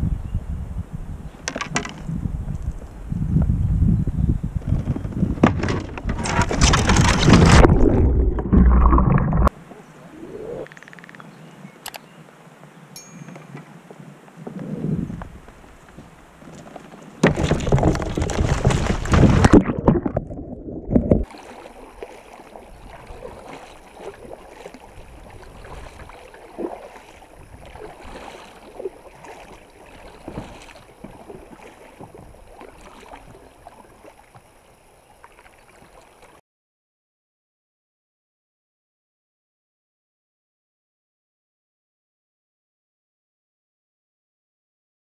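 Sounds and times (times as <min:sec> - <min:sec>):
kayak capsizing splash: 0:05.8 - 0:10.4, 0:16.3 - 0:36.4
paddle dipping into water: 0:15.2 - 0:36.4.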